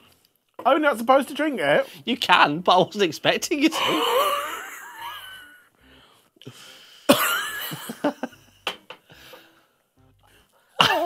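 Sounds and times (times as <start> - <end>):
person coughing and spluttering: 7.1 - 7.8.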